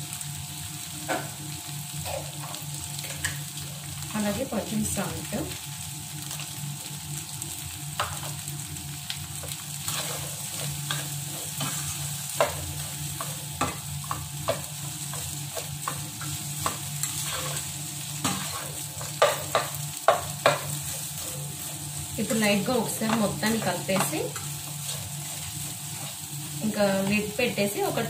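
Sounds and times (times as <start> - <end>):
okra sizzling in oil: 0.0 - 28.0
spatula scraping pan: 9.4 - 26.7.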